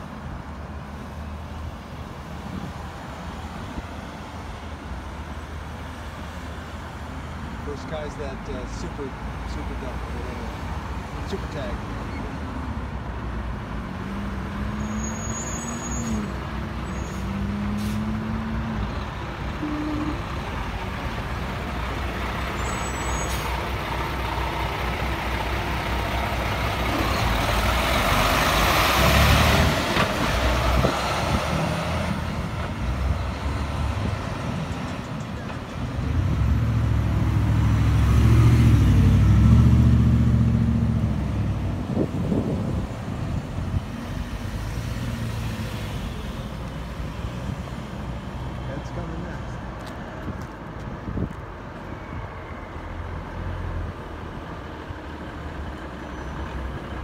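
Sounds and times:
diesel truck engines running: 13.6s - 57.0s.

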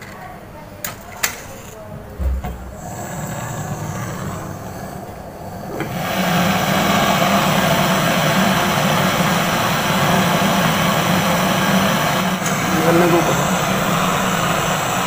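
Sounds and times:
torch flame hissing: 2.7s - 15.0s
gas torch lighting click: 12.1s - 12.8s.

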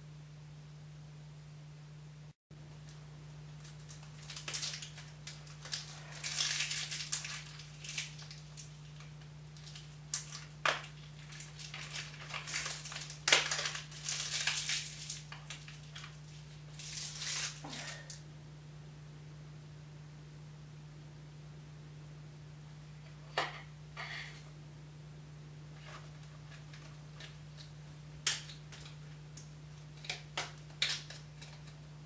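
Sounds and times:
packaging crinkling and rustling: 3.6s - 18.2s, 25.8s - 31.8s.

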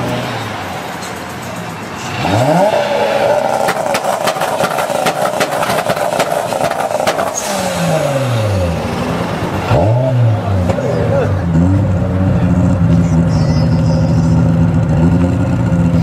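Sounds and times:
car engine revving: 0.0s - 16.0s
sharp cracks: 3.3s - 7.6s.

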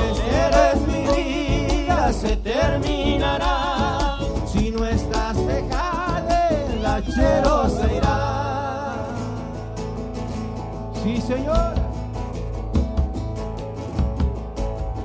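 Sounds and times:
person singing: 0.0s - 9.4s
acoustic guitar: 0.0s - 15.0s
violin: 6.5s - 8.3s.

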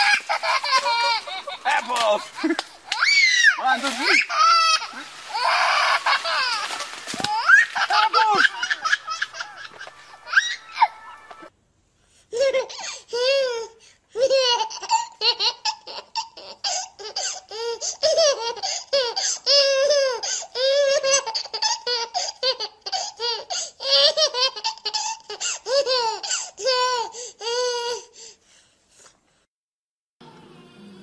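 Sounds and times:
baby laughing: 0.0s - 11.5s, 14.2s - 27.1s.

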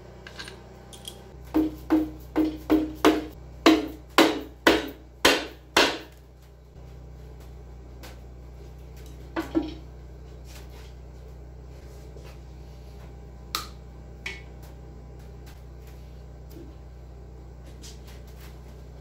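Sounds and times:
low hum: 0.0s - 19.0s
metal engine parts clunking: 0.2s - 3.3s, 8.8s - 10.0s.

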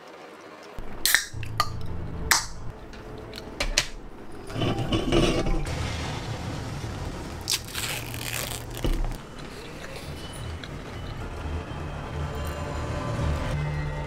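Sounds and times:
aluminium can clicks and taps: 1.0s - 2.6s.

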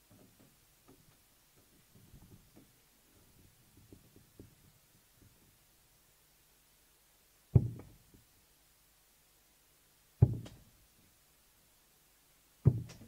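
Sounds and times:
darts thudding into dartboard: 12.7s - 13.0s.

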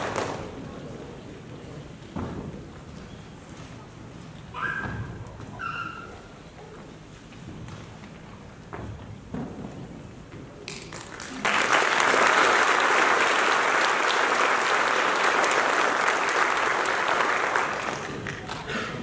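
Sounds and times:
audience applauding: 0.0s - 0.6s, 10.7s - 19.0s.

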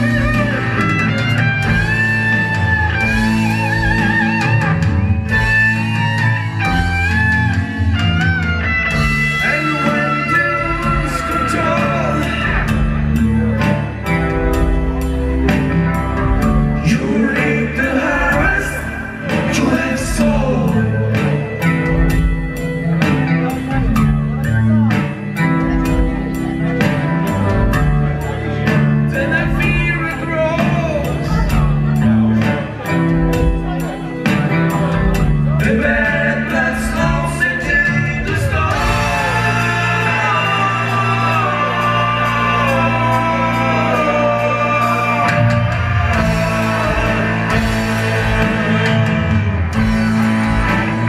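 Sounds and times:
electric guitar with vibrato: 0.0s - 51.0s
live rock band playing: 0.0s - 51.0s
person singing: 8.9s - 22.3s, 33.8s - 51.0s.

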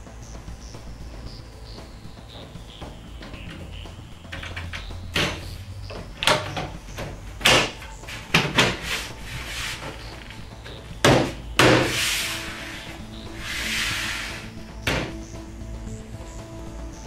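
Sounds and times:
wooden panels knocking: 2.7s - 15.2s.

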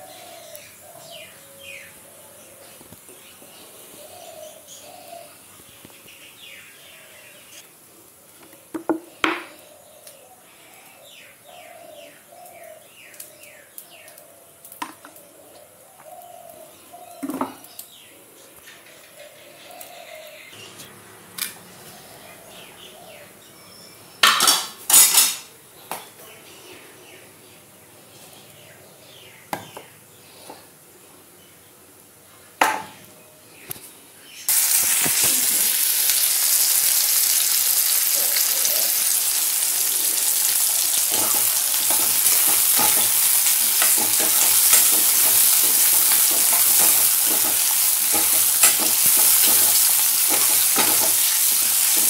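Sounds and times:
birds chirping: 0.0s - 7.6s, 21.6s - 24.2s, 37.9s - 52.0s
steel pots and utensils clanking: 24.3s - 25.5s, 41.0s - 52.0s.

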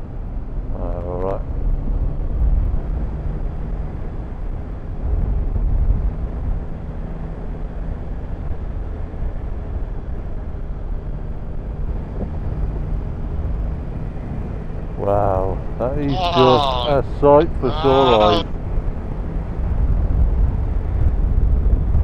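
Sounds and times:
wind rush on microphone: 19.2s - 22.0s.

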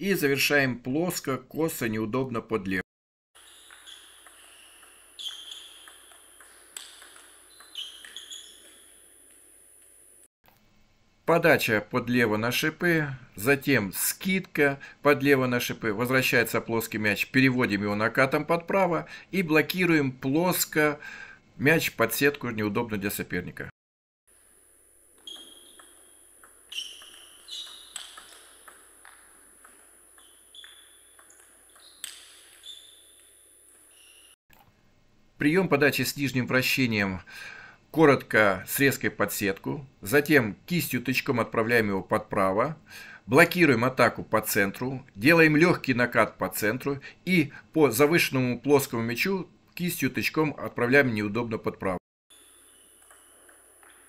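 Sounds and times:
table tennis ball clicking: 3.5s - 9.4s, 25.2s - 34.0s.

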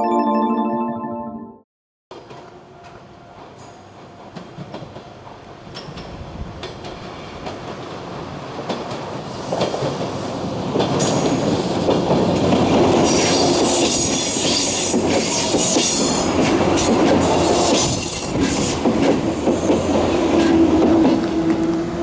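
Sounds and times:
train wheels clacking over rail joints: 8.6s - 21.8s.

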